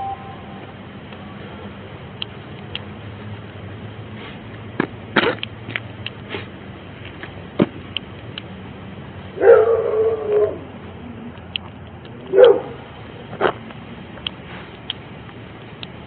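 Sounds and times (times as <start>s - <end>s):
dog barking: 9.4s - 10.6s, 12.3s - 12.8s.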